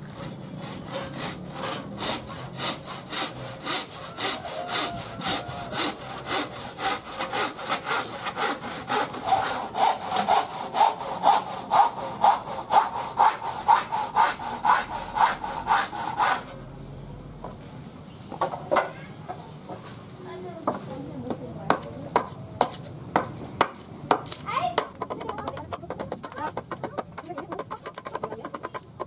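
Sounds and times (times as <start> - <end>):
handsaw cutting wood: 0.1 - 16.6, 25.0 - 29.0.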